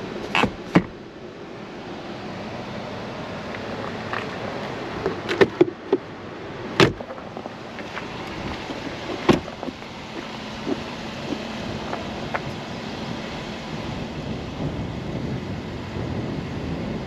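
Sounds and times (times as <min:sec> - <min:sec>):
car door closing thumps: 0:00.3 - 0:01.0, 0:06.8 - 0:12.5.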